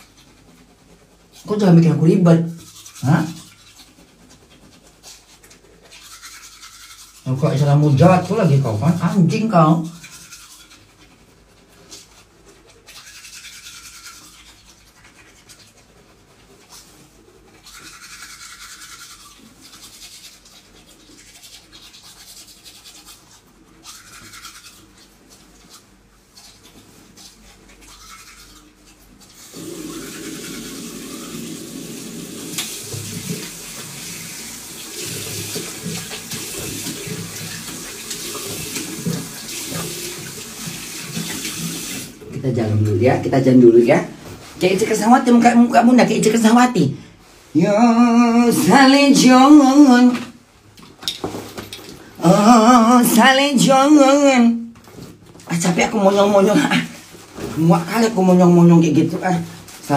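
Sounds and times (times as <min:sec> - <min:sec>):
teeth brushing: 0:00.0 - 0:42.3
water running into sink: 0:29.2 - 0:44.0.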